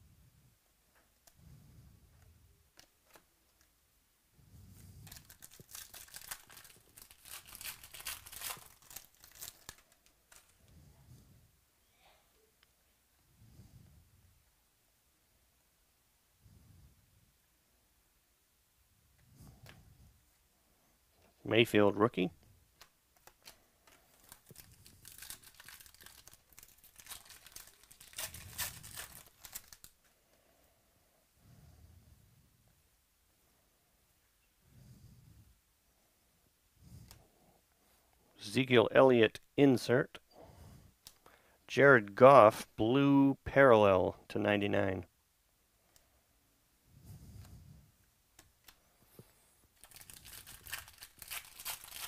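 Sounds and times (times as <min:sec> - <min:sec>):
foil wrapper crinkling and tearing: 0:05.0 - 0:10.6, 0:23.2 - 0:30.0, 0:49.8 - 0:52.0.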